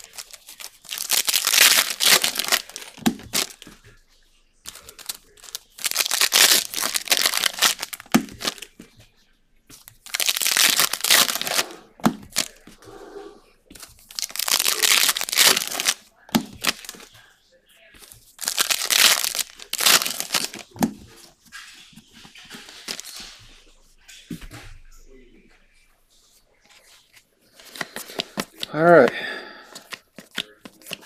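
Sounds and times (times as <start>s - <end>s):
card pack wrappers crinkling: 0.0s - 3.8s, 4.6s - 9.0s, 9.7s - 12.7s, 13.8s - 17.3s, 18.0s - 23.4s, 27.0s - 31.0s.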